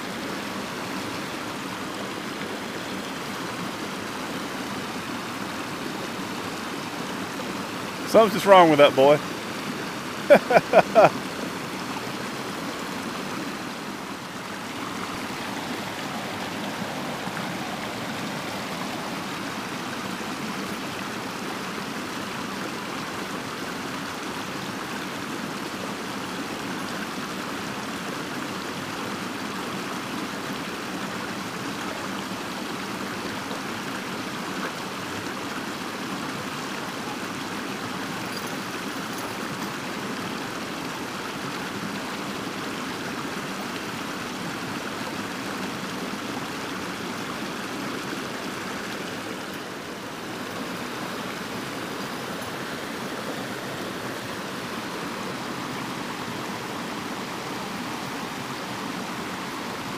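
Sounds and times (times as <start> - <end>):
creek rushing over rapids: 0.0 - 59.9
short voice-like sounds: 8.1 - 9.2.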